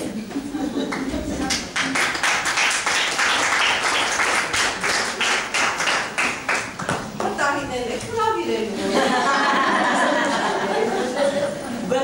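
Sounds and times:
crowd clapping: 0.9s - 7.4s.

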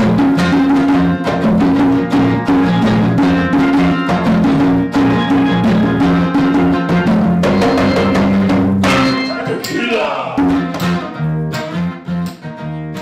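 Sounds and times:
conga hand drums: 0.0s - 9.8s, 10.4s - 11.2s
acoustic guitar: 0.0s - 13.0s
electric bass line: 0.0s - 13.0s
steel pans ringing: 7.5s - 9.8s.

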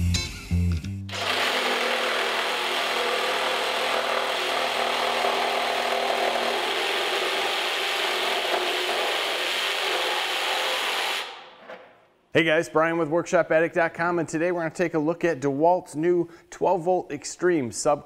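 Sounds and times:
reciprocating saw cutting wood: 1.1s - 11.6s.

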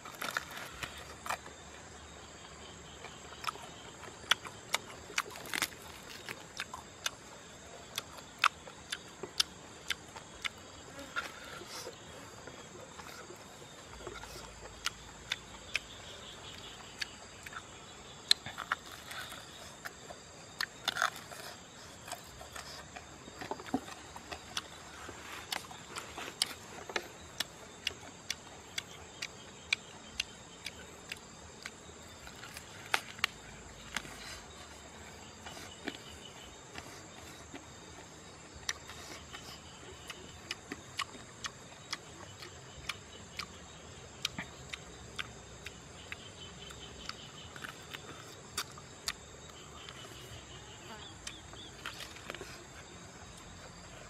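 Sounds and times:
man chewing and biting: 0.0s - 2.2s, 2.8s - 54.0s
high insect drone: 0.0s - 54.0s.

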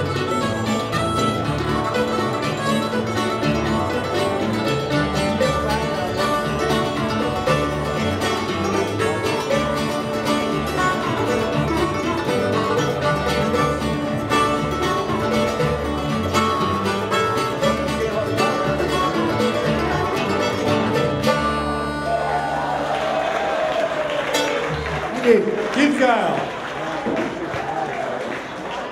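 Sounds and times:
upright bass line: 0.0s - 22.8s
plucked string band music: 0.0s - 23.0s, 24.2s - 25.1s.

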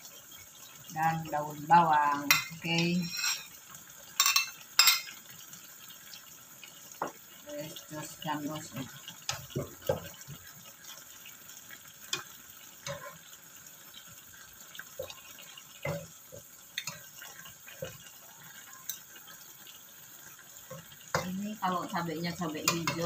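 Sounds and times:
broth bubbling in a wok: 0.0s - 23.0s
spatula scraping a pan: 2.3s - 3.6s, 12.1s - 13.4s.

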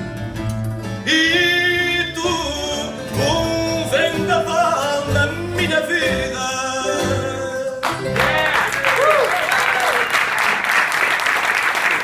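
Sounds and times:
double bass: 0.0s - 9.2s
guitars playing: 0.0s - 9.8s
man singing: 1.0s - 8.6s.

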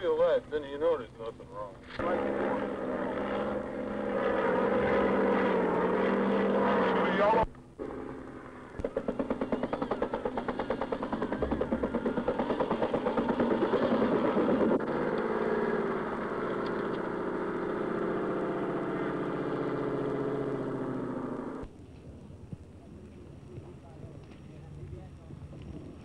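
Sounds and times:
tracked vehicle engine running: 0.0s - 26.0s
helicopter rotor beat: 2.0s - 21.6s.

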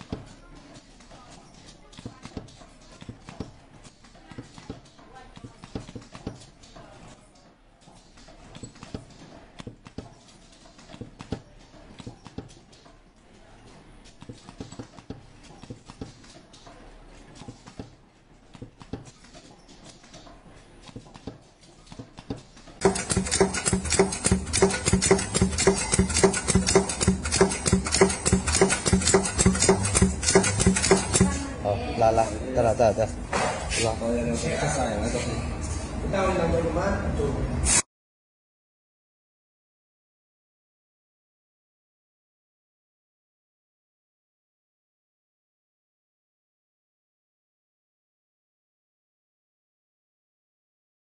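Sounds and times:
scattered clicks and taps: 20.8s - 31.4s
fast mechanical clatter: 22.8s - 31.5s
steady low hum: 22.8s - 37.6s.

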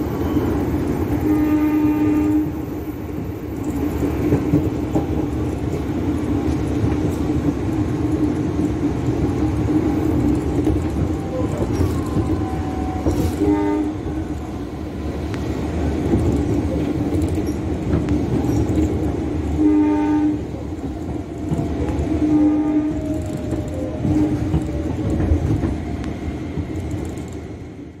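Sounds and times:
train rumbling and rattling: 0.0s - 28.0s
train horn blasts: 1.2s - 2.6s, 12.4s - 14.2s, 19.5s - 20.5s, 22.2s - 23.2s, 24.1s - 24.6s.

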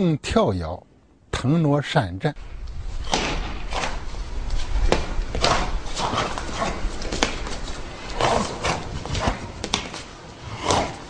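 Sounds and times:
low rumble: 2.4s - 11.0s
swishes of quick body movements: 2.6s - 11.0s.

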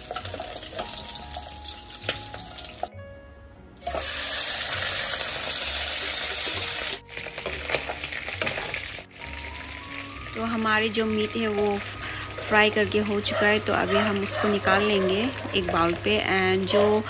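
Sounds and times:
meat sizzling in a pan: 0.0s - 2.9s, 3.8s - 12.9s.

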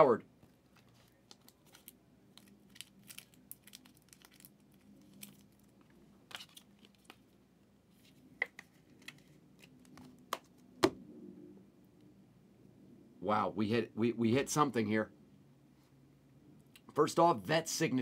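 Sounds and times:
cards rustling: 0.5s - 10.6s.

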